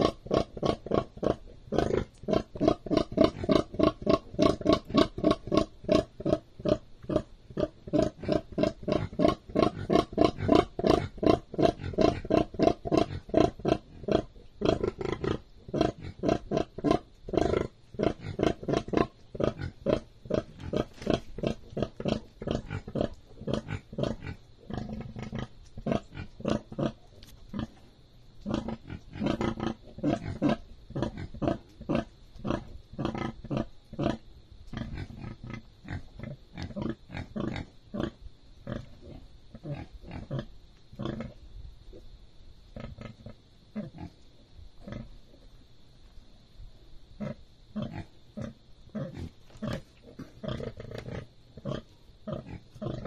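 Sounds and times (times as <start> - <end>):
sow grunting: 0.0 - 27.0.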